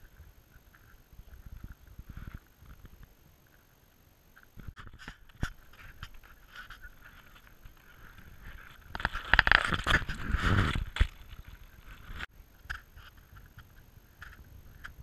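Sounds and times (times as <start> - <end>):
wind gusting over microphone: 8.0 - 11.2.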